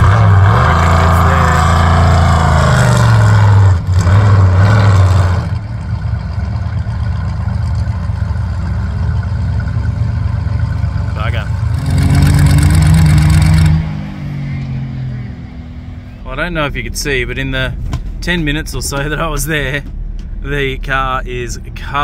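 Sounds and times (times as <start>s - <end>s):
vehicle engine revving high: 0.0s - 16.8s.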